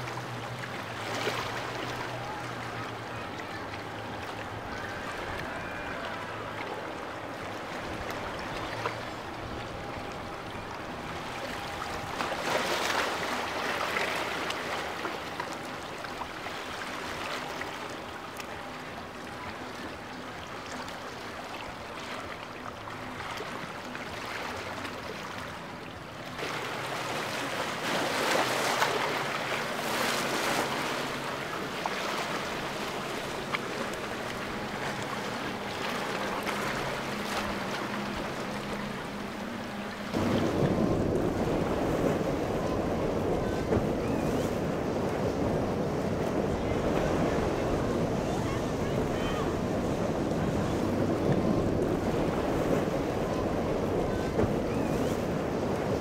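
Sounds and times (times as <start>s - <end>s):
boat engines running: 0.0s - 56.0s
water rushing and splashing: 0.0s - 56.0s
wind on microphone: 39.7s - 56.0s.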